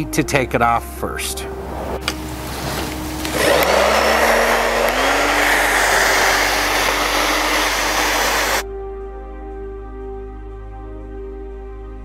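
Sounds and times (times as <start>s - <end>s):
hair dryer blowing: 2.1s - 8.6s.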